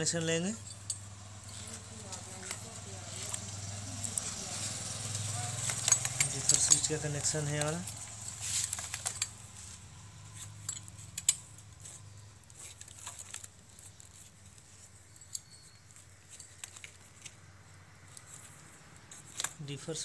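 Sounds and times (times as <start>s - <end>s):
wiring and connectors clicking: 5.4s - 9.6s.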